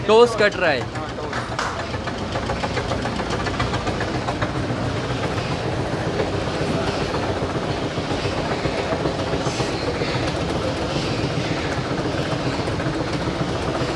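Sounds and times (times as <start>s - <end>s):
slicing machine clattering: 0.0s - 13.9s.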